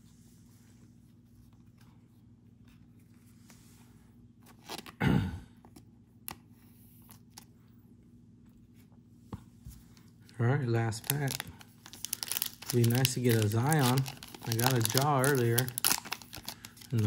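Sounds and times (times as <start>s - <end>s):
low steady hum: 0.0s - 17.0s
cards clicking and scraping: 11.0s - 17.0s.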